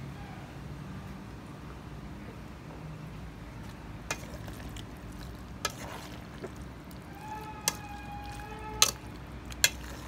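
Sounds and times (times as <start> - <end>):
spoon stirring salad in bowl: 3.6 - 10.0.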